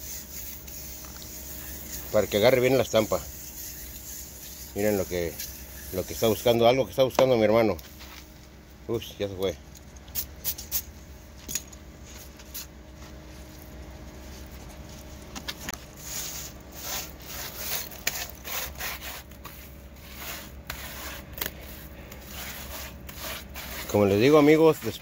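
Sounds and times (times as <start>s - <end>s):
mortar scraping on wall: 16.0s - 25.0s.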